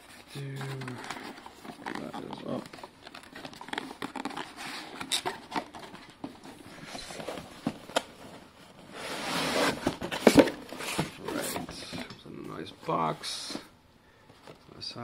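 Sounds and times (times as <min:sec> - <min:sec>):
cardboard box being handled: 0:00.0 - 0:12.2
cardboard sliding scrape: 0:08.8 - 0:12.0.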